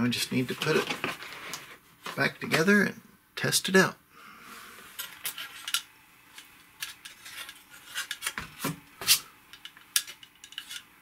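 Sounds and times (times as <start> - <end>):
plastic parts clicking and clattering: 5.0 - 5.9, 9.5 - 10.9.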